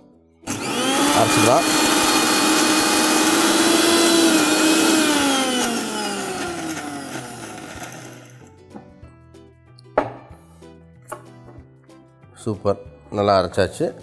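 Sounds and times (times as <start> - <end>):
mixer grinder running: 0.4 - 8.5
motor winding down: 0.5 - 8.5.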